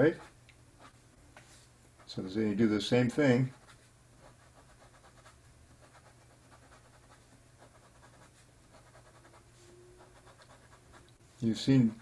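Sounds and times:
low steady hum: 0:00.0 - 0:12.0
pen scratching on paper: 0:03.4 - 0:09.4, 0:10.0 - 0:11.0.

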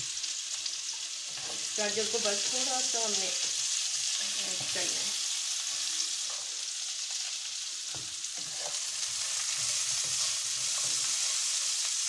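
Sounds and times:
vegetables sizzling in oil: 0:00.0 - 0:12.0
spatula stirring and scraping: 0:00.9 - 0:01.8, 0:07.9 - 0:12.0.

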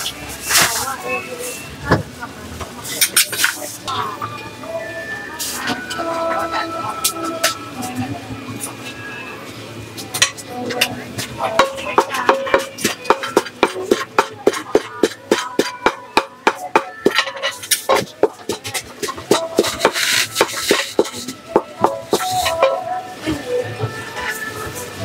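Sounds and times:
wooden pestle pounding in clay mortar: 0:11.6 - 0:22.8.

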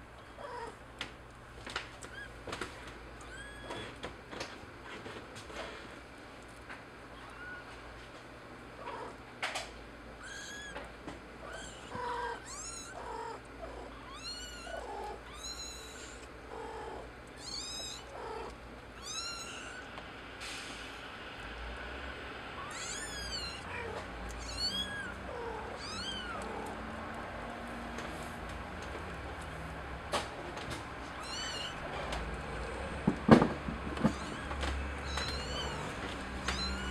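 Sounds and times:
kittens mewing: 0:03.1 - 0:04.1, 0:10.1 - 0:20.0, 0:22.5 - 0:26.9, 0:31.0 - 0:32.8, 0:33.9 - 0:36.9.

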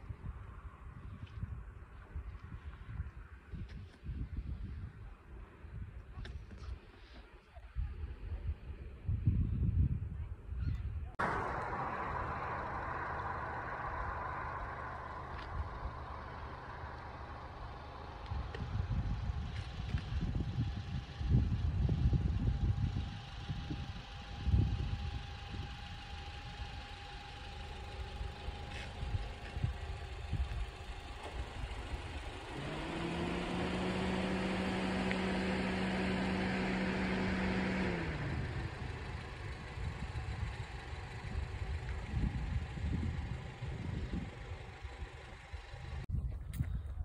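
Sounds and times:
wind gusting on microphone: 0:07.7 - 0:17.0, 0:18.3 - 0:26.0, 0:28.9 - 0:47.0
vehicle engine running: 0:11.1 - 0:47.0.

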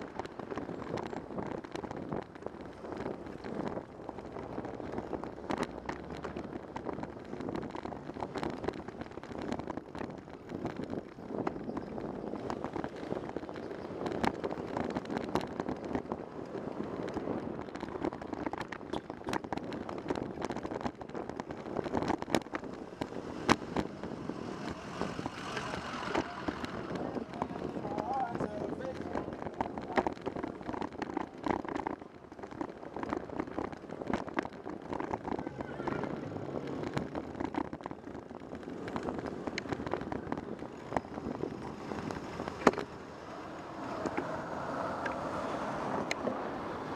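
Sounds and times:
road rumble: 0:00.0 - 0:46.9
sharp clicks and rattles: 0:00.0 - 0:46.9
wind on microphone: 0:00.0 - 0:46.9.

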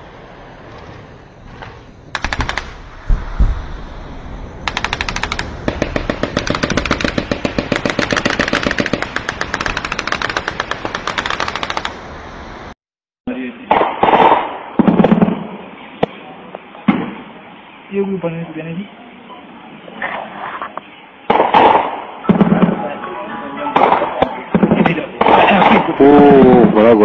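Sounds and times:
automatic weapon fire: 0:02.1 - 0:03.6, 0:04.6 - 0:12.0, 0:13.7 - 0:15.5, 0:21.3 - 0:22.8, 0:23.8 - 0:26.6
heavy thuds: 0:02.6 - 0:04.4.

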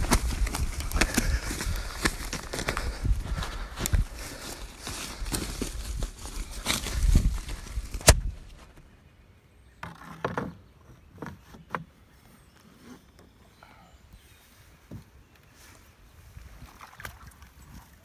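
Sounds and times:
footsteps crunching through dry leaves: 0:00.0 - 0:08.8
knocks and bumps in a canoe: 0:09.8 - 0:12.0.

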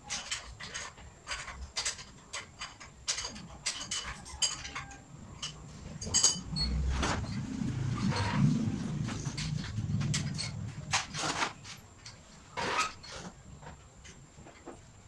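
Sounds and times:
metal tools clinking: 0:00.0 - 0:07.4.

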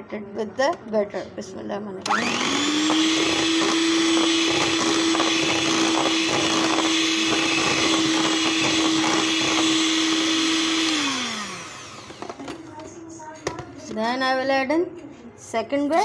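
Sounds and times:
electric hand mixer running: 0:02.1 - 0:12.6.

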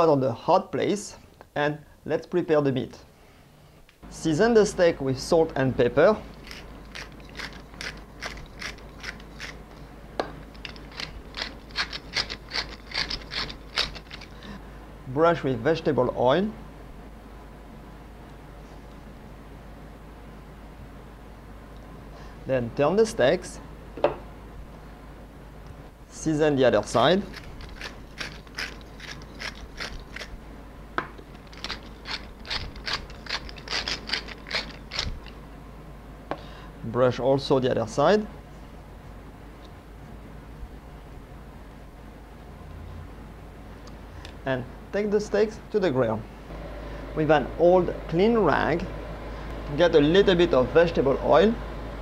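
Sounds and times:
pepper mill grinding clicks: 0:06.4 - 0:09.8, 0:10.4 - 0:14.4, 0:27.2 - 0:30.3, 0:31.2 - 0:35.4.

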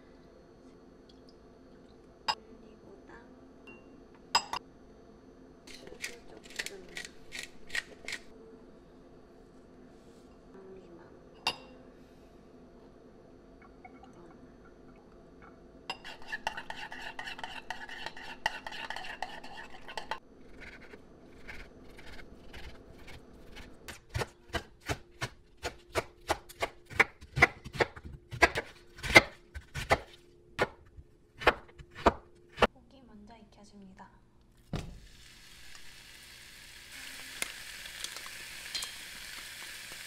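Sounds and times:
metal spoon scraping ceramic bowl: 0:15.9 - 0:22.7
knife chopping on cutting board: 0:21.5 - 0:32.7.

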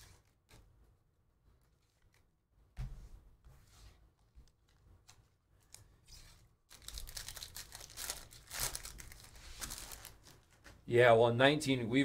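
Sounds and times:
foil wrapper tearing and crinkling: 0:06.7 - 0:10.4.

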